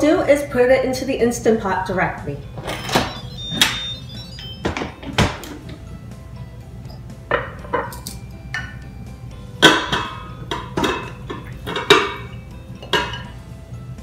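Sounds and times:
glass bowl clinking on metal pot: 9.6s - 13.3s.

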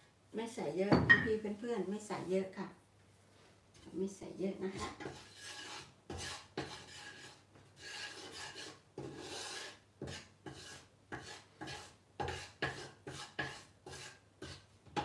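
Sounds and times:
wooden spatula scraping frying pan: 4.6s - 15.0s.

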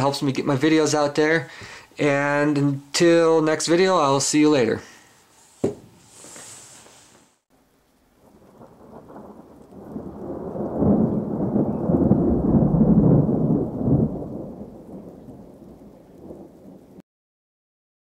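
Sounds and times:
low rolling thunder-like rumble: 8.2s - 17.0s.

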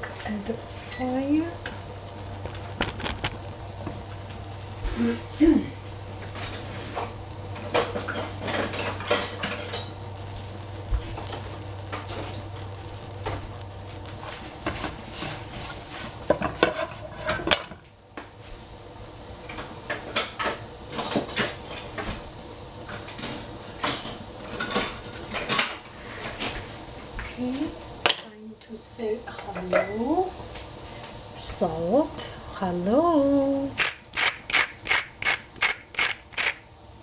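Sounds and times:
steady low hum: 0.0s - 37.0s
metal utensil scraping pan: 16.4s - 17.7s.

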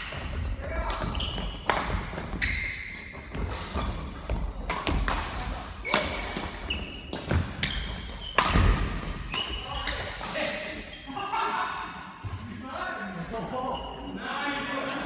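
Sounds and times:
shoe squeaks: 0.2s - 11.1s
racket hitting shuttlecock: 0.9s - 10.4s.

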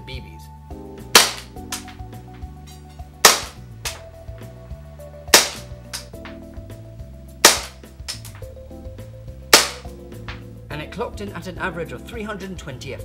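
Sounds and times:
airsoft pistol shots: 1.2s - 1.9s, 3.2s - 4.0s, 5.3s - 6.1s, 7.4s - 8.2s, 9.5s - 9.9s.

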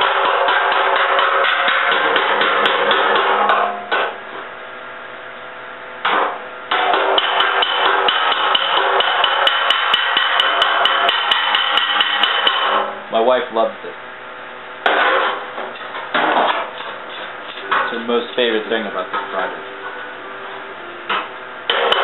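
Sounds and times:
hammer striking steel panel: 0.0s - 4.2s, 6.0s - 12.9s, 14.8s - 16.8s, 21.1s - 22.0s.

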